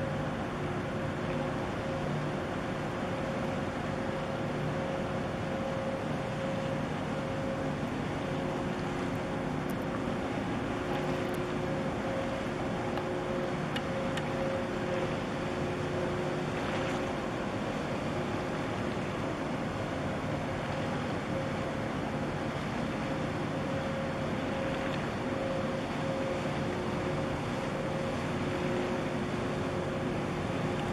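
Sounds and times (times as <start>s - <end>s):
ship engine droning: 0.0s - 30.9s
water noise: 0.0s - 30.9s
wind: 0.0s - 30.9s.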